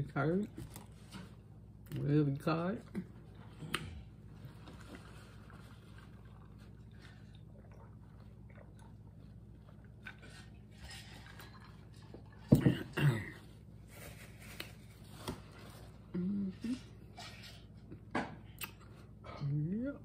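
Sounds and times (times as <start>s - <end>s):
drinking and chewing: 2.8s - 13.2s.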